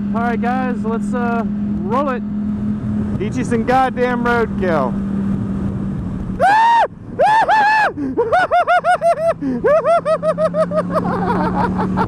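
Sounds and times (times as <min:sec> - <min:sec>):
motorcycle engine hum: 0:00.0 - 0:12.0
person yelling in alarm: 0:06.4 - 0:07.9.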